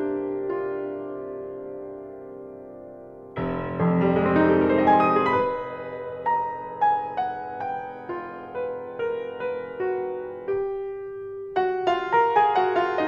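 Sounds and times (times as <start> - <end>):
solo piano music: 0.0 - 13.0.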